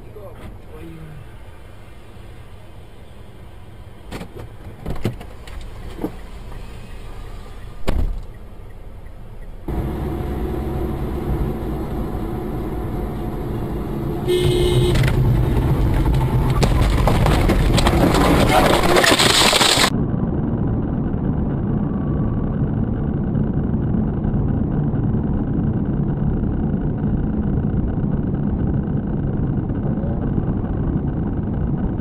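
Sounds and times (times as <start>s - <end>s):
car engine and road noise: 0.0s - 32.0s
low cabin noise: 7.8s - 32.0s
car horn honk: 9.7s - 15.9s.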